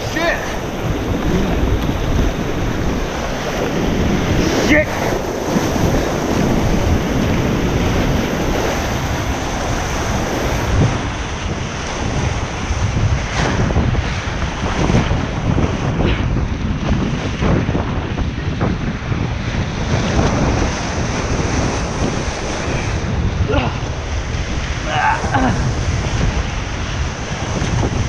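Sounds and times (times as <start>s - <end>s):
whitewater rapids rushing: 0.0s - 12.7s, 20.4s - 28.0s
water splashing against kayak: 0.0s - 28.0s
wind buffeting microphone: 0.0s - 28.0s.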